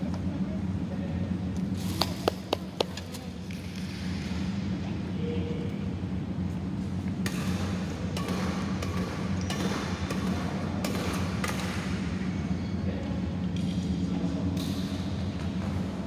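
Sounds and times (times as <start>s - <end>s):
steady low hum: 0.0s - 16.0s
shuttlecock struck with rackets: 7.2s - 12.0s.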